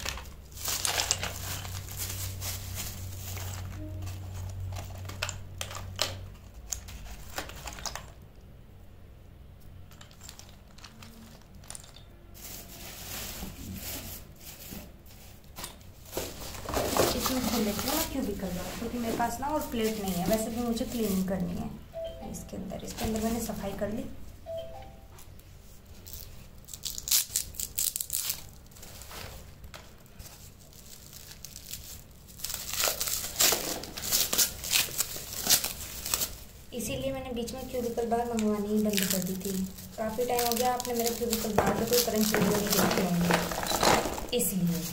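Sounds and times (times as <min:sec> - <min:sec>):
foil crinkling rustle: 0:00.0 - 0:08.2, 0:10.2 - 0:21.6, 0:25.9 - 0:44.9
soft handling noise: 0:09.9 - 0:21.6, 0:37.6 - 0:44.9.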